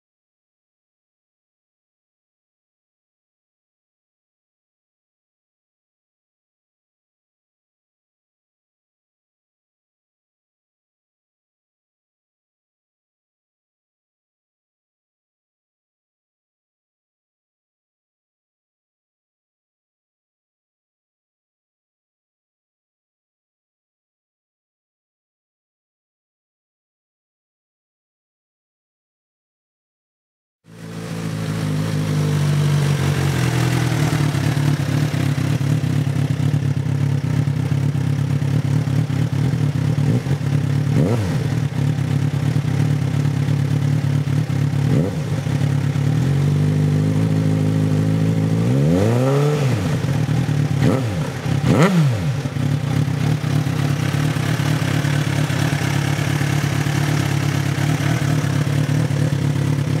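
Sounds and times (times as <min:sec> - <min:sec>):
motorcycle engine idling and revving: 0:30.7 - 1:00.0.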